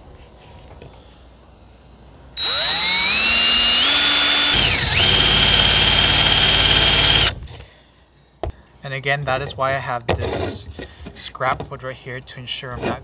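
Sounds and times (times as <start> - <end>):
cordless drill drilling into wood: 2.4 - 7.4.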